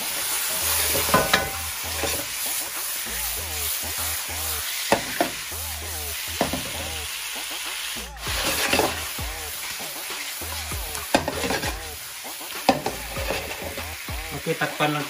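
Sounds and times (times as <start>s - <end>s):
chicken sizzling in a pan: 0.0s - 15.0s
wooden spatula knocking on pan: 6.4s - 6.8s, 10.8s - 11.8s.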